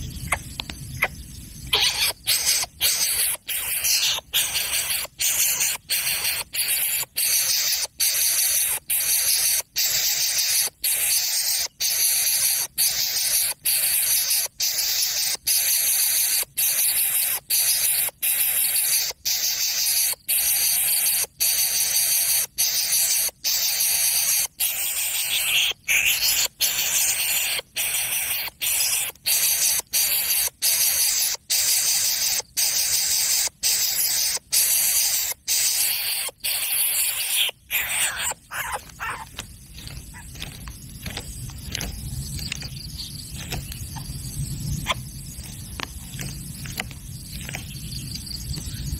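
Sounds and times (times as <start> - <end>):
bird chick rasping hisses: 1.0 - 40.4.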